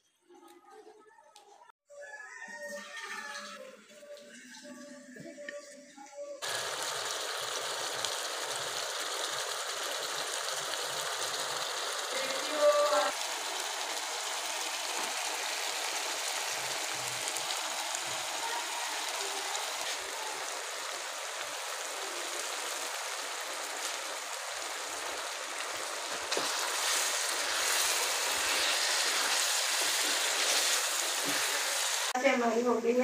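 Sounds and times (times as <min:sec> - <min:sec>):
food sizzling in a pan: 0:06.4 - 0:33.0.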